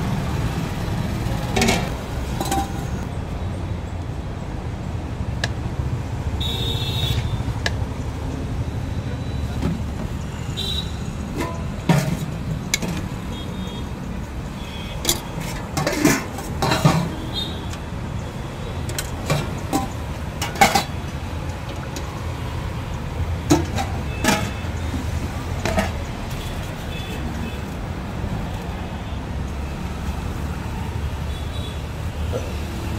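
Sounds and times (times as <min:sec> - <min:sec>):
road traffic rumble: 0:00.0 - 0:32.9
spoons clinking on steel containers: 0:01.6 - 0:03.0, 0:11.3 - 0:13.1, 0:15.0 - 0:17.8, 0:18.9 - 0:22.1, 0:23.5 - 0:25.0, 0:25.6 - 0:26.2.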